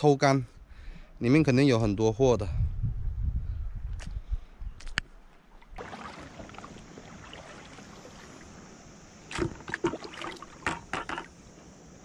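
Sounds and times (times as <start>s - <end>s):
water sloshing: 5.4s - 11.5s
sharp splashes: 5.6s - 11.2s.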